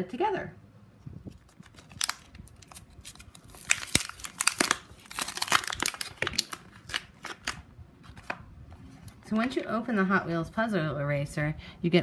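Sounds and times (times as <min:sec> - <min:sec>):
plastic packaging crinkling: 0:01.3 - 0:08.4.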